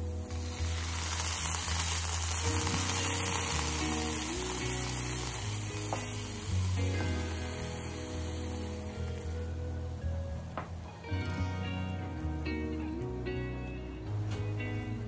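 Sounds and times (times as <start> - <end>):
liquid sizzling in hot wok: 0.0 - 10.0.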